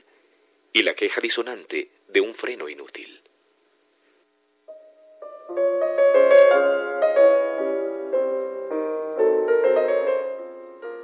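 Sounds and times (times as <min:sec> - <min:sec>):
slow piano music: 0:04.7 - 0:11.0.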